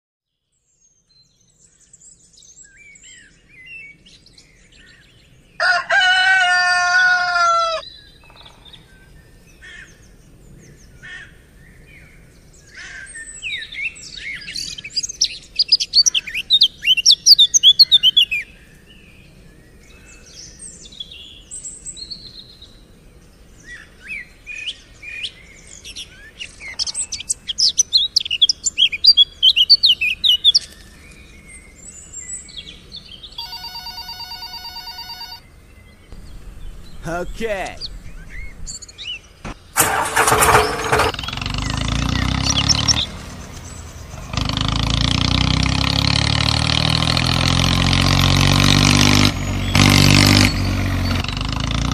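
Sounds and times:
rooster crowing: 0:05.6 - 0:07.8
small birds chirping: 0:07.3 - 0:39.8, 0:40.5 - 0:44.8.

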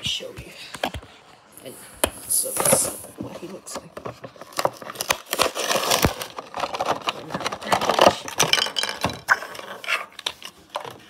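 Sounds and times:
toy packaging crinkling: 0:02.3 - 0:11.0.

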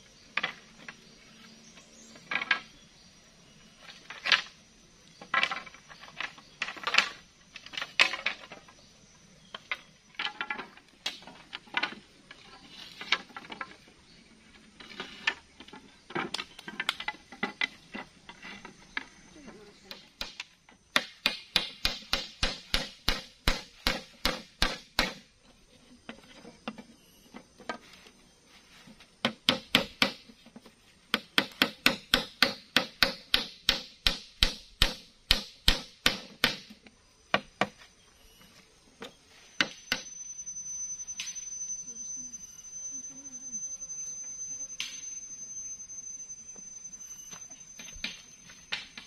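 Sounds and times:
high-pitched tone: 0:40.0 - 0:49.0.

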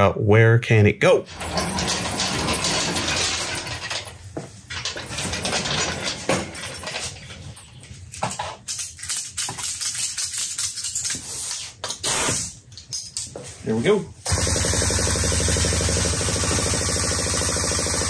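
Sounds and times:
metal chain clanking: 0:01.3 - 0:07.5.

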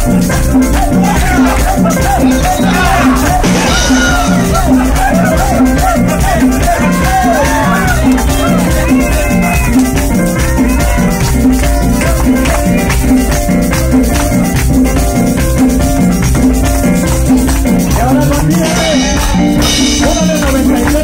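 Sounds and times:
loud dance music: 0:00.0 - 0:21.0.

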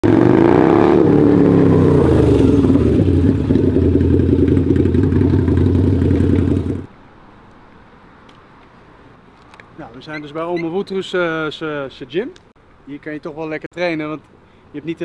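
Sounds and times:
motorcycle engine idling: 0:02.1 - 0:06.9.

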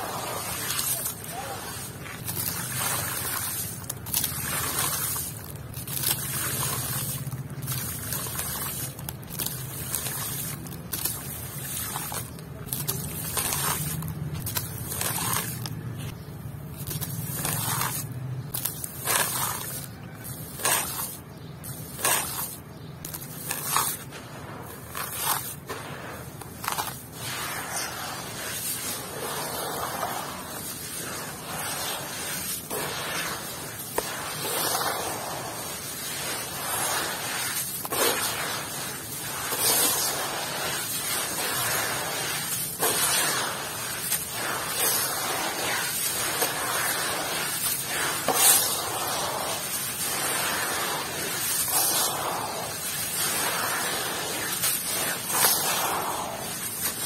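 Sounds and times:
wet block crunching and spattering: 0:00.6 - 0:15.8.

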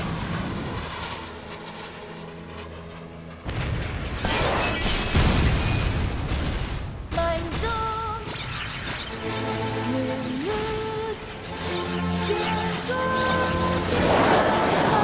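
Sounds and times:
steady low drone: 0:00.0 - 0:04.0
explosions: 0:03.4 - 0:07.7
music: 0:08.8 - 0:15.0
rocket motor rush: 0:08.8 - 0:15.0.

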